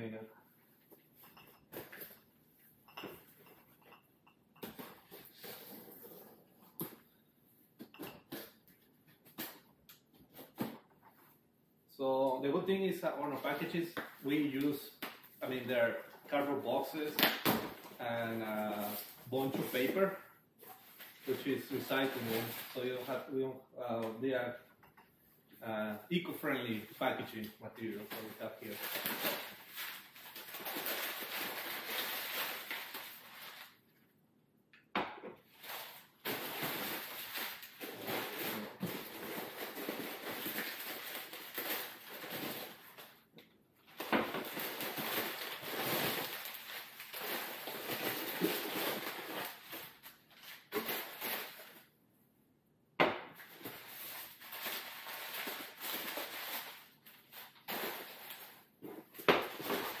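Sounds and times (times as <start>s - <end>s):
packing paper rustling and crinkling: 20.7s - 23.3s, 26.8s - 33.9s, 35.5s - 43.2s, 43.8s - 51.9s, 53.4s - 60.0s.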